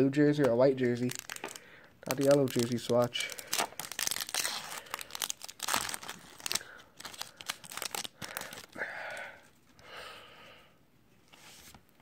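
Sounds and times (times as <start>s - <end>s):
foil wrapper crinkling and tearing: 0.9s - 8.8s.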